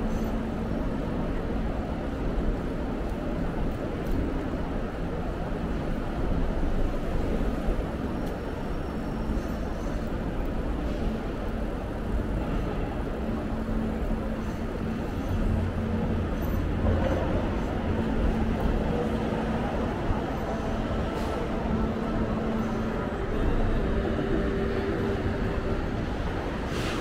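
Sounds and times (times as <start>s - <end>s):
city street traffic rumble: 0.0s - 27.0s.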